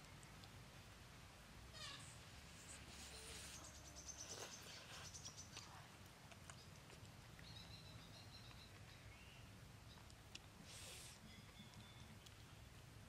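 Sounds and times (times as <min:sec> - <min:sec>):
bird chirping: 0:01.8 - 0:05.7, 0:07.4 - 0:10.1.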